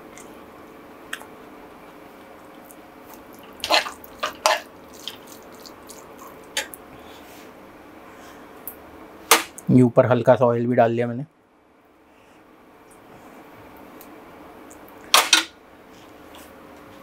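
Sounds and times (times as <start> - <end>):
oil popping and crackling: 2.6 - 6.8.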